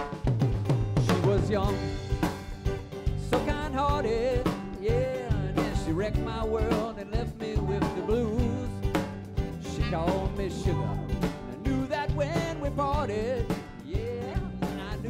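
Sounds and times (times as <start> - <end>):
bass: 0.0 - 15.0
steady drum beat: 0.0 - 15.0
wavering lead melody: 9.6 - 13.4.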